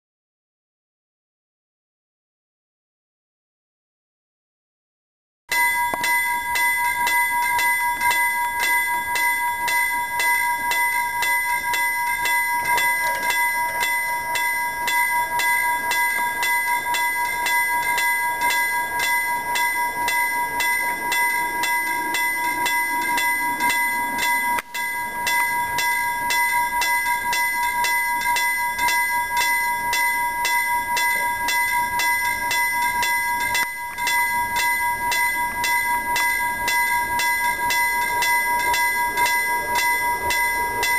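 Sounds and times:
level crossing warning bell: 0:05.5 - 0:40.9.

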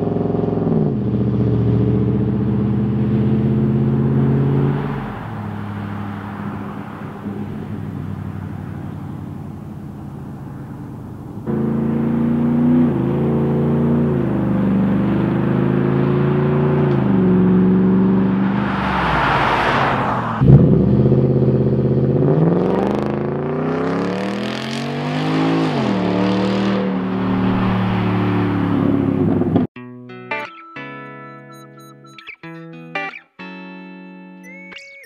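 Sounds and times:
truck engine revving: 0:00.0 - 0:09.8, 0:10.4 - 0:29.7
truck passing by: 0:01.2 - 0:22.7, 0:23.6 - 0:29.7.

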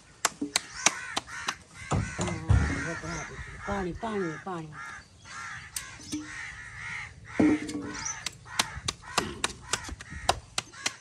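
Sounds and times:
crows cawing: 0:00.0 - 0:11.0.

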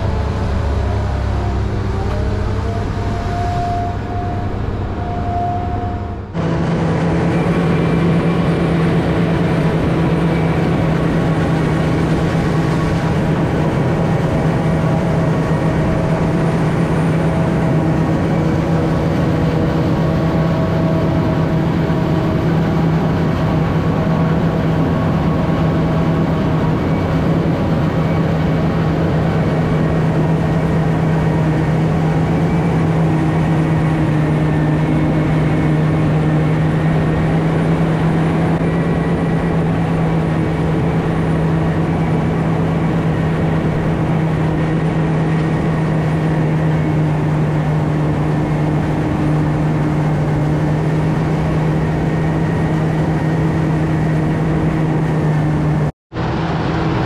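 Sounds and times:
harvester engine hum: 0:00.0 - 0:57.0.

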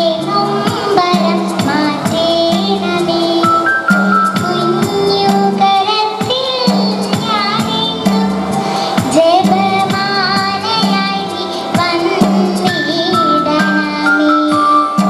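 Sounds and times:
steady percussive beat: 0:00.0 - 0:13.9
girl singing into a microphone: 0:00.0 - 0:15.0
repeating bass notes: 0:06.7 - 0:13.9.

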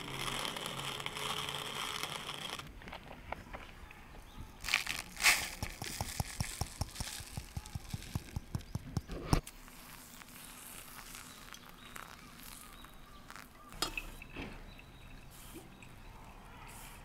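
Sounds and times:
coffee grinder cup tapping: 0:05.7 - 0:09.1.

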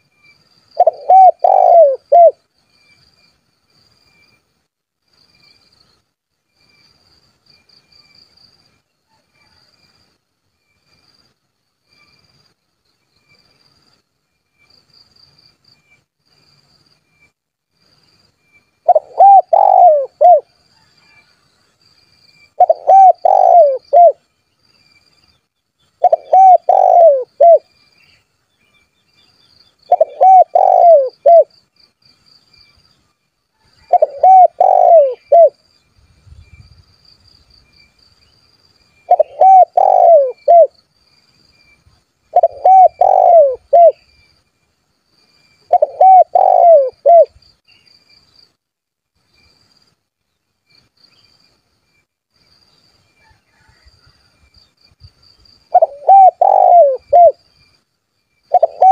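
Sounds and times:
dove cooing: 0:00.8 - 0:02.4, 0:18.8 - 0:20.5, 0:22.6 - 0:24.2, 0:26.0 - 0:27.7, 0:29.9 - 0:31.5, 0:33.9 - 0:35.6, 0:39.1 - 0:40.7, 0:42.3 - 0:44.0, 0:45.7 - 0:47.3, 0:55.7 - 0:57.4, 0:58.5 - 0:58.9.

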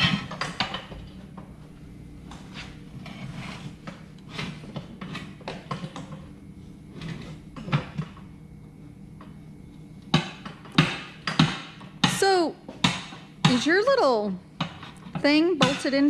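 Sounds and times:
hand tools scraping and clanking: 0:02.3 - 0:06.2, 0:06.9 - 0:07.8, 0:14.6 - 0:16.0.

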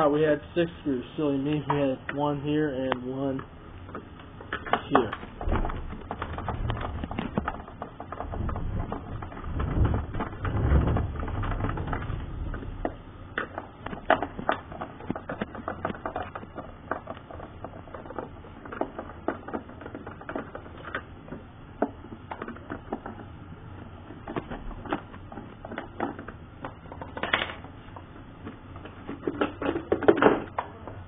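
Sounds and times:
heavy bumps and rumbling: 0:04.8 - 0:13.1.

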